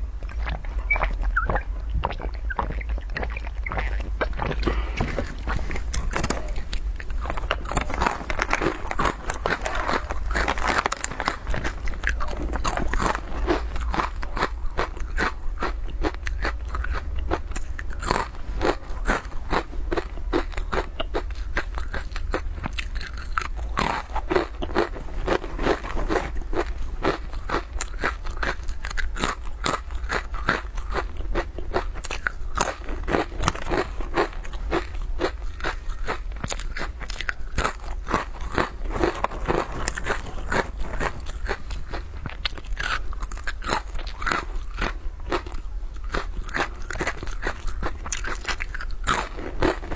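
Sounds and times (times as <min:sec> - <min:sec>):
crunchy crackers being chewed: 0:00.0 - 0:49.9.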